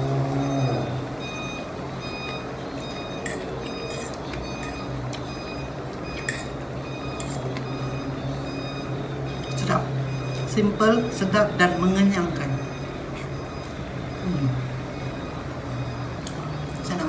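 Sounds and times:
fork clinking on ceramic plate: 3.2s - 4.9s, 6.2s - 6.6s.

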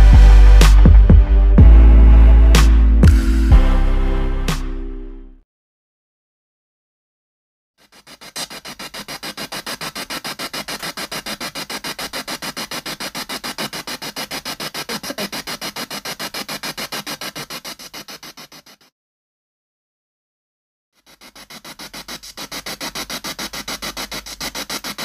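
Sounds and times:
radio static in rapid bursts: 14.6s - 15.6s.

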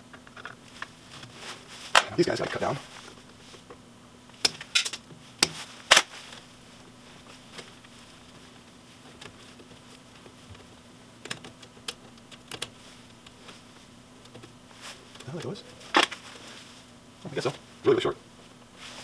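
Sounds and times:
faint steady hum: 0.0s - 19.0s
wire strippers clicking: 4.3s - 6.4s, 9.1s - 13.4s.

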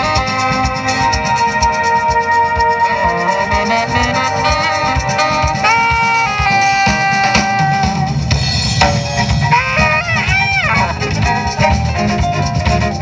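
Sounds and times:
drum kit beat: 0.0s - 13.0s
saxophone melody: 0.0s - 13.0s
violin: 9.2s - 13.0s.

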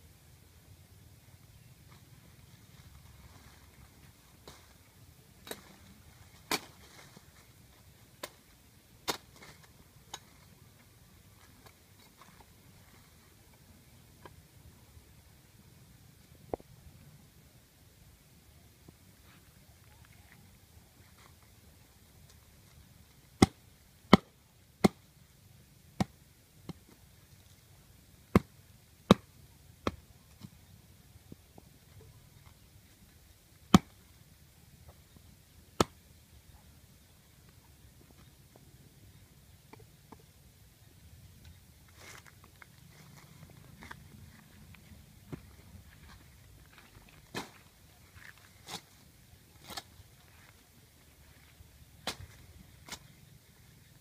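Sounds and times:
machete chopping branch: 52.0s - 53.0s.

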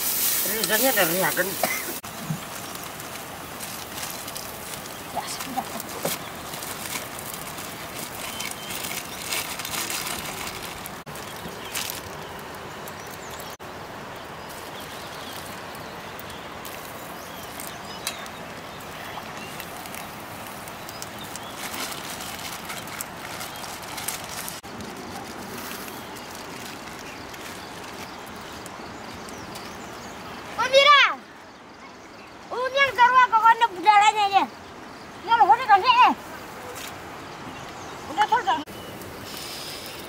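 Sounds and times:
rustling: 0.0s - 13.0s, 18.9s - 28.6s
outdoor background noise: 0.0s - 40.0s.

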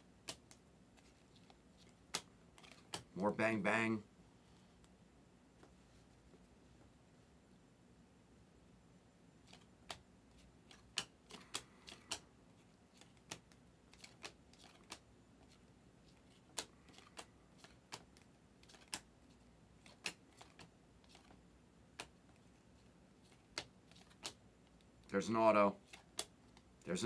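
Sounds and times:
trading cards clicking: 0.2s - 3.2s, 10.7s - 12.3s, 13.0s - 15.0s, 16.3s - 19.1s, 19.8s - 21.4s, 23.3s - 24.4s, 25.9s - 26.7s.

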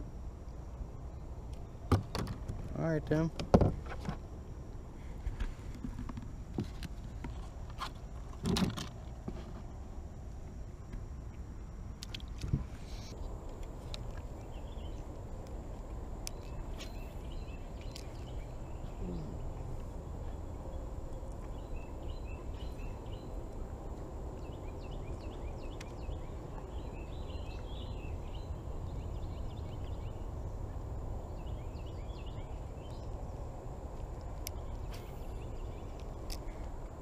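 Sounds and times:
steady low rumble: 0.0s - 37.0s
birds chirping: 12.9s - 33.5s, 34.2s - 36.9s.

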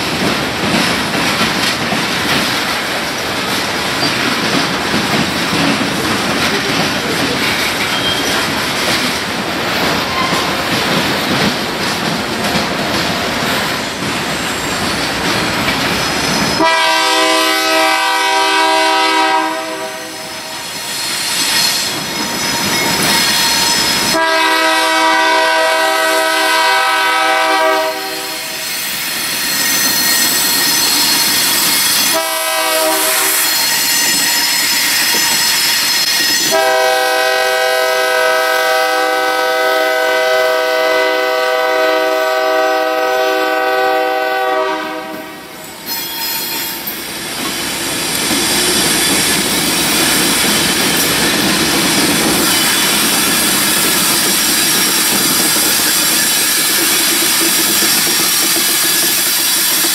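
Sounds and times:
locomotive air horn blasts: 16.6s - 20.6s, 24.1s - 28.6s, 32.1s - 34.6s, 36.4s - 45.5s
locomotive engine and wheel noise: 46.5s - 59.9s.

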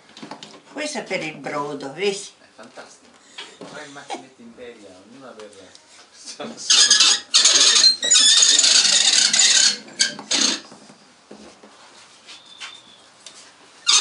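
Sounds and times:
pasta machine rasping rattle: 6.7s - 10.7s.

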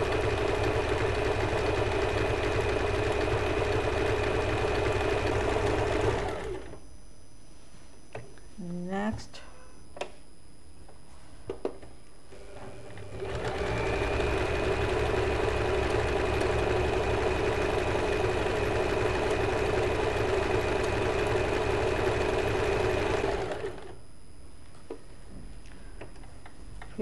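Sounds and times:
sewing machine stitching: 0.0s - 6.8s, 12.3s - 24.0s.

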